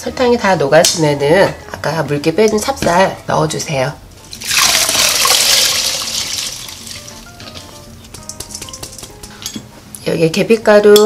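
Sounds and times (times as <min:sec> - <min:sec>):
soft background music: 0:00.0 - 0:11.0
rice pouring into pot: 0:04.4 - 0:07.1.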